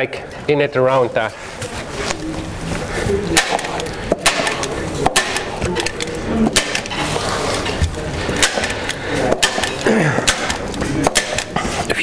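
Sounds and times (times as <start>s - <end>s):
plastic sheet rustling: 1.0s - 9.9s.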